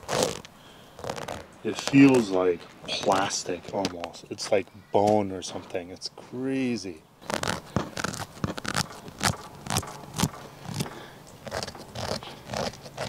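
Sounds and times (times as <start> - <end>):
fingernail scratching fish scales: 0.0 - 0.4, 1.0 - 2.2, 7.2 - 13.0.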